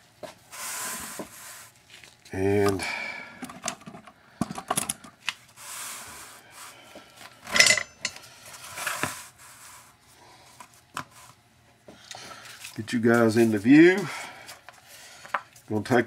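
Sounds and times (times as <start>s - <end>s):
scrape on workbench: 0.5s - 1.7s, 8.5s - 9.9s.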